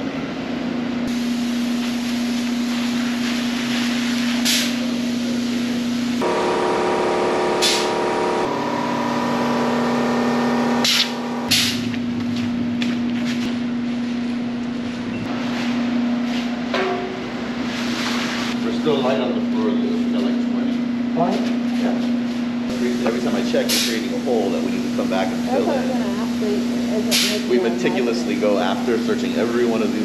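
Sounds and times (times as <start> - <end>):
spray gun hiss bursts: 1.1 - 8.5, 9.1 - 11.8, 22.7 - 24.2, 26.3 - 27.5
pump humming: 6.2 - 11.7
spray hiss: 27.1 - 27.4.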